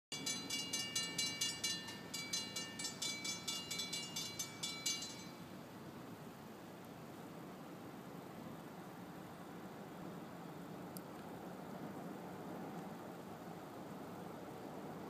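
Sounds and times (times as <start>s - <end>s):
railroad crossing bell ringing: 0.1s - 5.6s.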